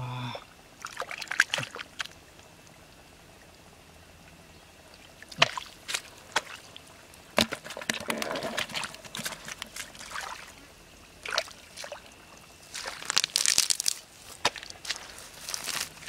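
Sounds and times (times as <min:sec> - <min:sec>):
splashing in muddy puddle: 0:00.8 - 0:02.2, 0:05.2 - 0:06.8, 0:07.4 - 0:10.6, 0:11.2 - 0:16.0
crackling through dry grass: 0:11.2 - 0:16.0.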